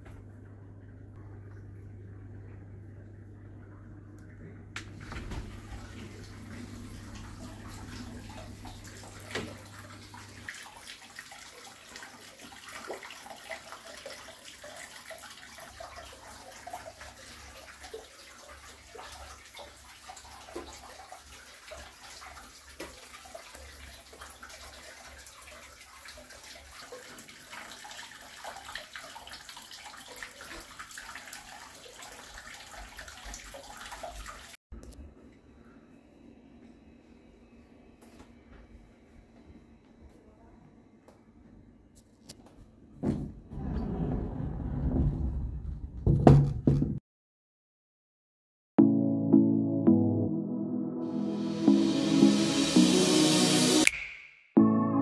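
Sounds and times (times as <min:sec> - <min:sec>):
water splashing into a bath: 0:04.4 - 0:34.6.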